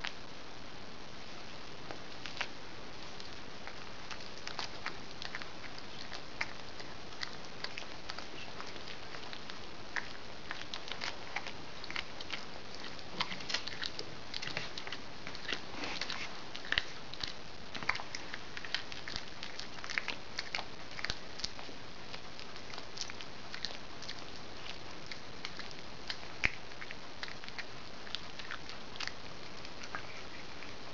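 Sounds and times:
cat crunching on prey: 2.1s - 30.9s.

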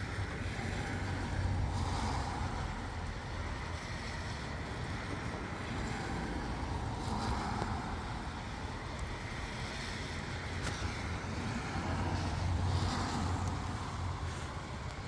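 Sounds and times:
light wind blowing: 0.0s - 15.0s
faint ticks: 8.9s - 9.2s.

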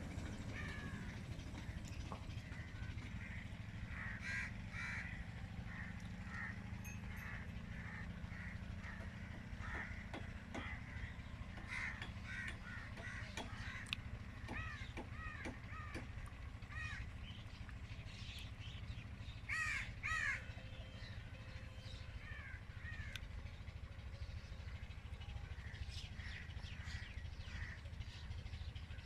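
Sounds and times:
small birds chirping: 0.0s - 29.0s
crows cawing: 0.3s - 1.8s, 2.4s - 17.1s, 19.5s - 20.6s, 22.2s - 23.2s, 25.6s - 27.9s.

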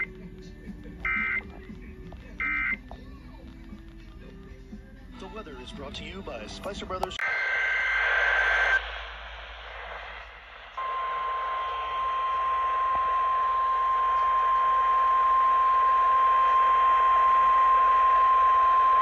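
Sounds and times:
radio hiss: 7.0s - 19.0s
steady high alarm tone: 10.8s - 19.0s.

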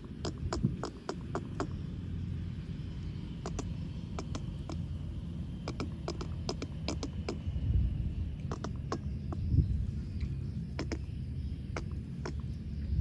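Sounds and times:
sharp clicks: 0.0s - 1.9s, 3.4s - 4.8s, 5.6s - 7.5s, 8.4s - 9.4s, 10.7s - 11.1s, 11.7s - 12.5s
road traffic rumble: 0.0s - 13.0s.

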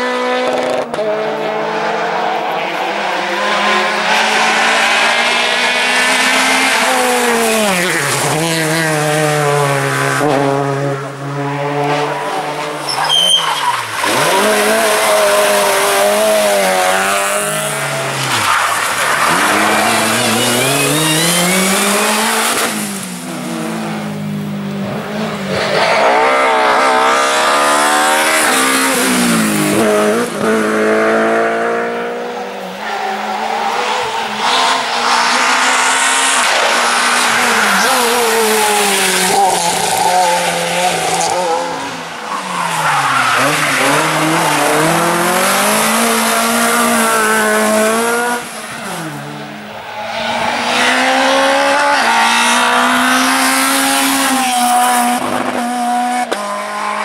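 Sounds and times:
rally car engines revving: 0.0s - 57.0s.

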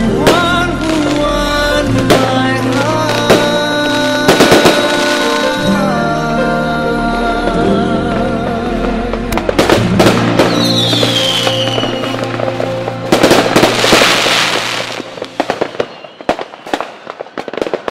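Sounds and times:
fireworks bangs and crackling: 0.0s - 5.7s, 8.6s - 17.9s
song: 0.0s - 17.9s
firework whistle: 2.1s - 5.7s, 10.0s - 17.9s.

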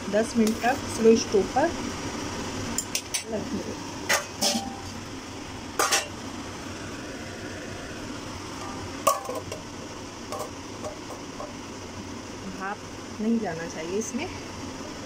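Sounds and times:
metal plate clanking on pot: 4.1s - 4.9s, 5.8s - 6.2s, 9.0s - 9.6s.

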